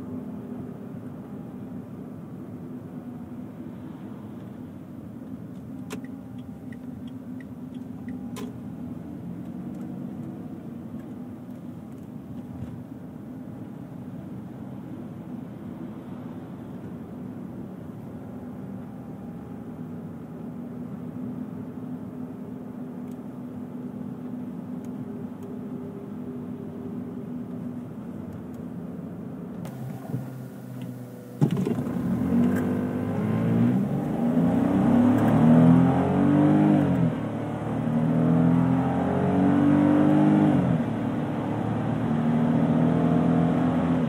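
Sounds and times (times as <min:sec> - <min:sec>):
road noise: 0:00.0 - 0:44.0
car engine accelerating through gears: 0:29.6 - 0:44.0.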